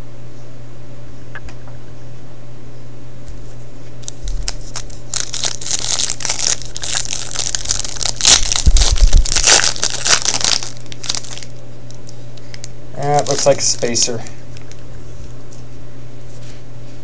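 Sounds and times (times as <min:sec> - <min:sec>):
foil card pack crinkling: 0:04.0 - 0:14.8.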